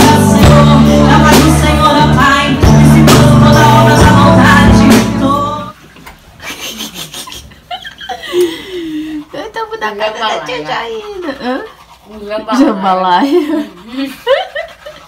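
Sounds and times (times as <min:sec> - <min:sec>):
electric bass: 0:00.0 - 0:05.7
electric guitar: 0:00.0 - 0:05.7
drums: 0:00.0 - 0:05.8
women singing: 0:00.0 - 0:05.8.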